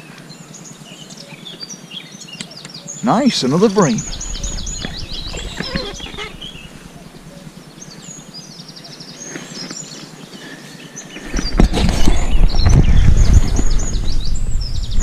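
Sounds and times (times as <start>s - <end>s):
songbirds chirping: 0.0s - 15.0s
low rumble: 4.0s - 7.3s.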